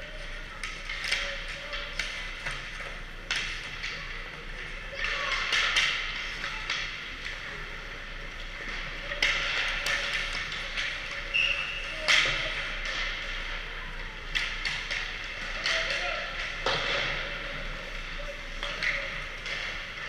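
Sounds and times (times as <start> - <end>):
sticks hitting pucks: 0.1 - 20.0
pucks striking boards: 0.6 - 20.0.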